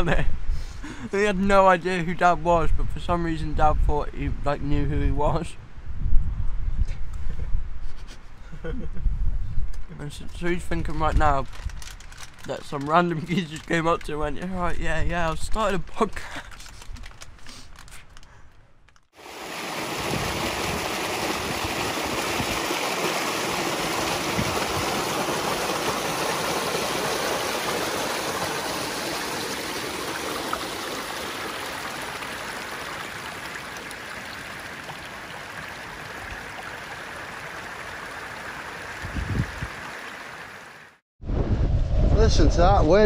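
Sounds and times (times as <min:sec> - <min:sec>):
stream running over rocks: 0:19.2 - 0:41.0
low rumbles: 0:41.2 - 0:43.0.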